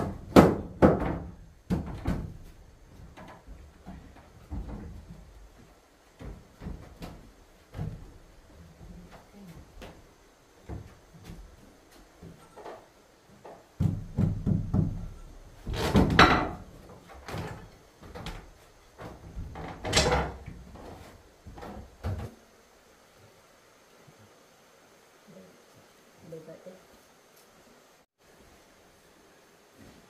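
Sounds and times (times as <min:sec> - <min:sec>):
wooden boards knocking: 0:00.0 - 0:05.3, 0:13.4 - 0:22.3.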